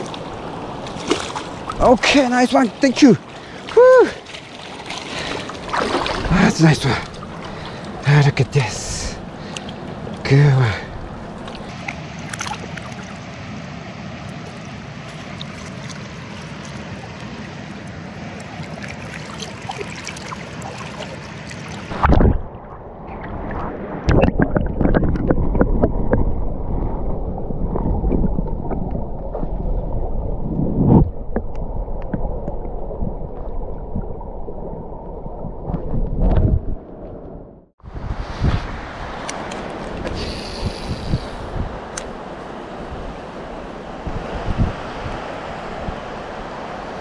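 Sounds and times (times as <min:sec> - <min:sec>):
river water rushing: 0:00.0 - 0:22.1, 0:37.9 - 0:47.0
wind buffeting microphone: 0:35.1 - 0:47.0.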